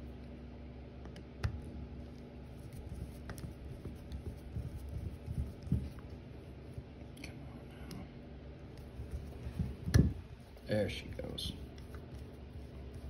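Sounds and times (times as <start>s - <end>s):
soft handling noise: 7.7s - 13.0s.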